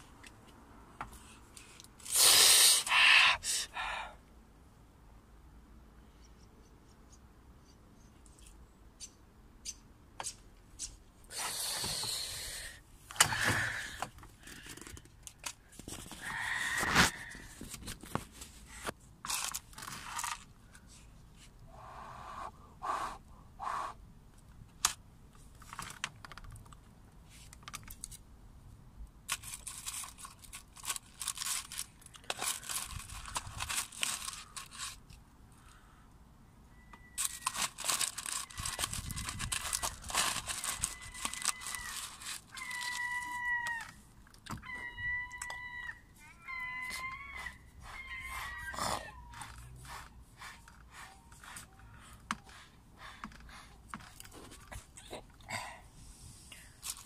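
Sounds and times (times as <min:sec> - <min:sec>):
plastic pot scraping and rustling: 0:11.3 - 0:21.6, 0:37.1 - 0:43.8, 0:46.8 - 0:55.0.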